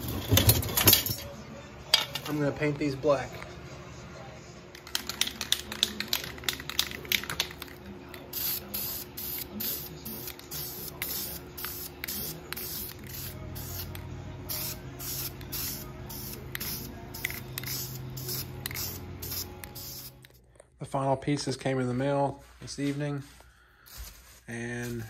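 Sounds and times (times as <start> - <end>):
spray can shaken with clicks: 4.8 - 13.9, 14.5 - 20.2
spray paint hissing bursts: 8.3 - 20.2.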